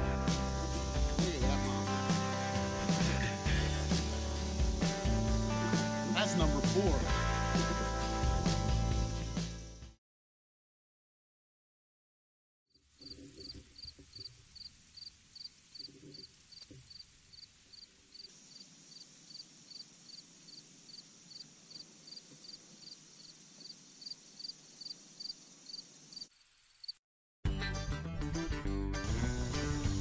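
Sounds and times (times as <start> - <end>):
high-pitched insect trill: 0.0 - 10.0, 12.7 - 27.0, 29.1 - 30.0
short high insect chirps: 12.7 - 27.0.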